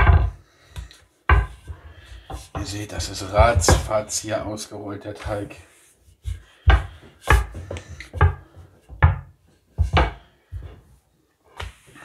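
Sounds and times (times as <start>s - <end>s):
rolling pin on countertop: 0.0s - 4.1s, 5.7s - 10.8s.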